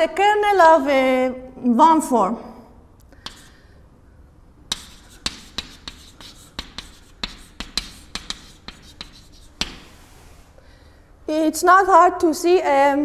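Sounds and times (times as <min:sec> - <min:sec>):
chalk tapping and scratching on board: 0:03.2 - 0:03.7, 0:04.7 - 0:10.2.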